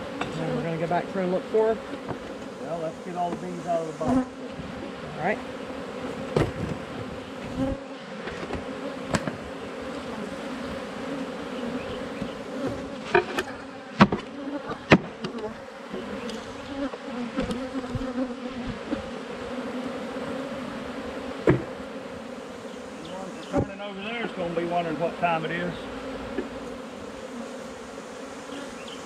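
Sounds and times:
bees buzzing: 0:00.0 - 0:29.0
sharp knocks: 0:21.4 - 0:21.7.

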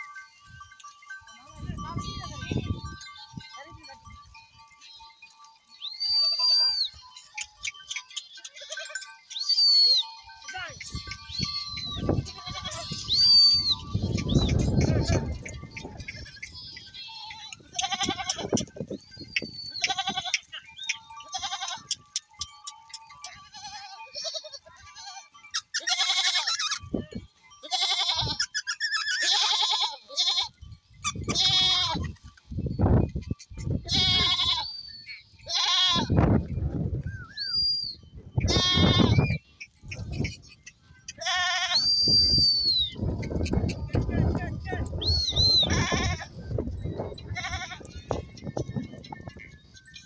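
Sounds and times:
goats bleating: 0:06.1 - 0:18.7, 0:19.7 - 0:22.1, 0:23.2 - 0:26.8, 0:27.6 - 0:30.6, 0:31.2 - 0:32.2, 0:33.8 - 0:34.8, 0:35.4 - 0:36.2, 0:38.4 - 0:39.4, 0:40.1 - 0:41.8, 0:43.2 - 0:46.4, 0:47.2 - 0:48.5.

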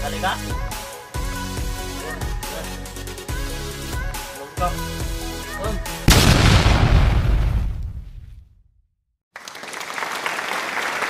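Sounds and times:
applause: 0:09.3 - 0:11.0.

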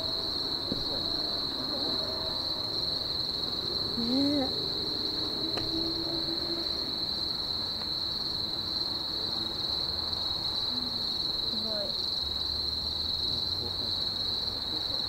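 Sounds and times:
insects chorus: 0:00.0 - 0:15.0.

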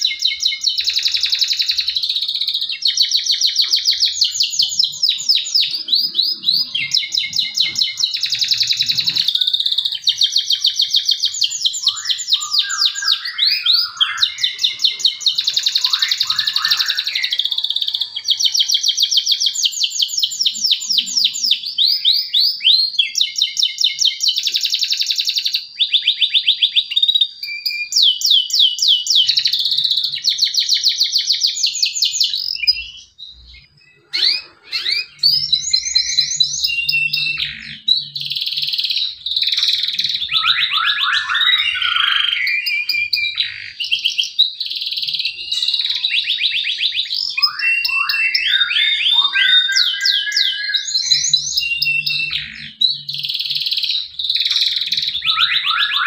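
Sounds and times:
canary singing trills: 0:00.0 - 0:56.0.

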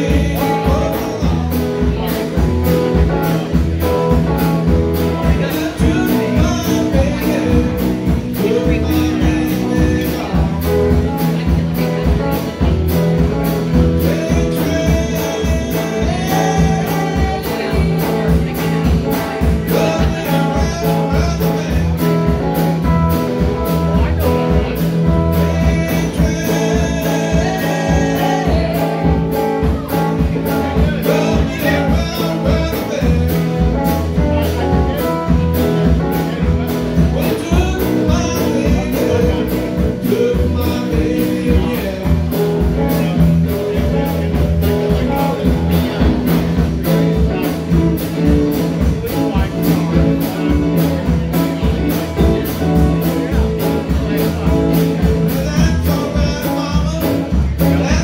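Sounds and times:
bass guitar: 0:00.0 - 0:58.0
drum kit beat: 0:00.0 - 0:58.0
electric guitars: 0:00.0 - 0:58.0
woman singing: 0:14.0 - 0:18.9, 0:25.3 - 0:29.8.

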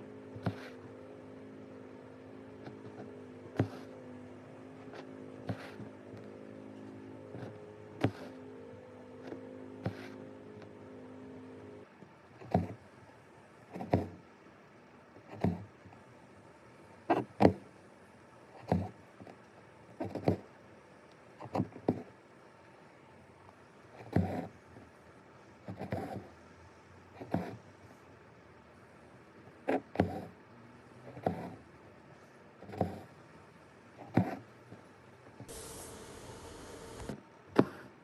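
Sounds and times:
steady low hum: 0:35.5 - 0:37.2.

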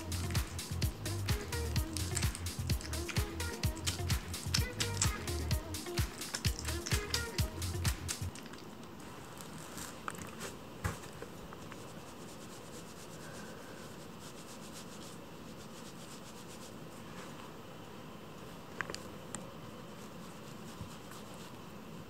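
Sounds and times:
background music with a beat: 0:00.0 - 0:08.4
kitten scratching cardboard: 0:00.0 - 0:08.6, 0:09.4 - 0:17.1, 0:19.9 - 0:21.7.

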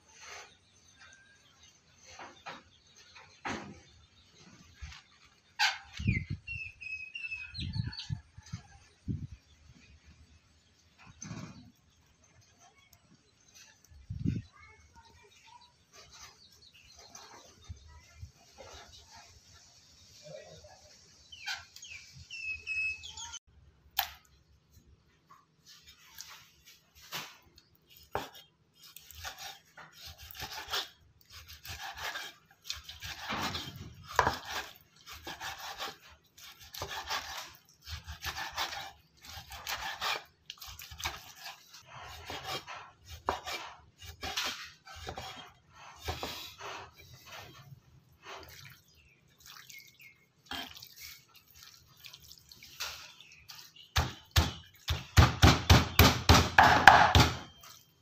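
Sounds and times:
knife chopping on wooden block: 0:31.6 - 0:36.0, 0:54.0 - 0:57.5.

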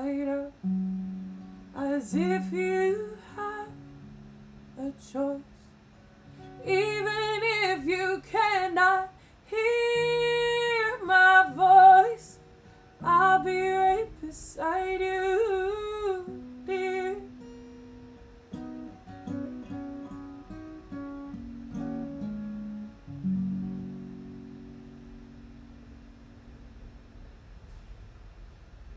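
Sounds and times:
woman singing wordless notes: 0:00.0 - 0:00.8, 0:01.7 - 0:03.8, 0:04.8 - 0:05.6, 0:06.6 - 0:17.4
acoustic guitar: 0:00.0 - 0:28.9.

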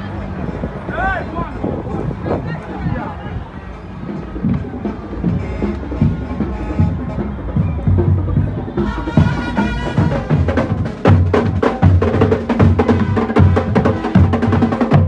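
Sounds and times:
marching band playing: 0:03.8 - 0:15.0
bass drum beat: 0:04.0 - 0:15.0.

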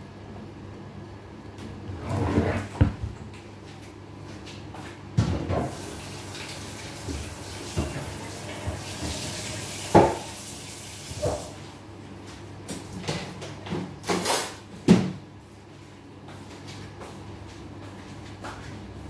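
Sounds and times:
tap running: 0:05.5 - 0:10.4.

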